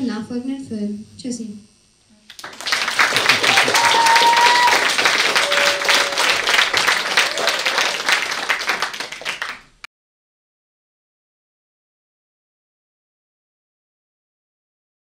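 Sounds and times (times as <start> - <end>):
audience applauding: 2.3 - 9.9.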